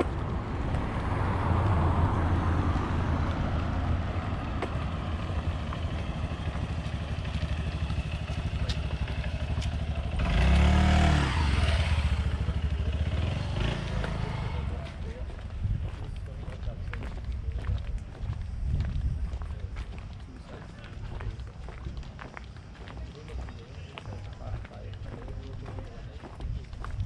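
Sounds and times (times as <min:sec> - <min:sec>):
vehicle passing close by: 0:00.0 - 0:15.3
engine humming: 0:00.0 - 0:27.0.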